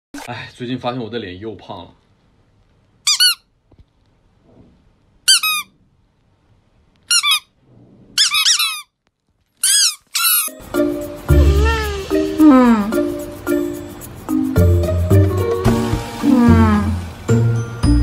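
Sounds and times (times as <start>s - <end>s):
squeaky toy squeaking: 3.0s - 3.5s, 5.3s - 5.7s, 7.1s - 7.6s, 8.2s - 9.0s, 9.6s - 10.6s.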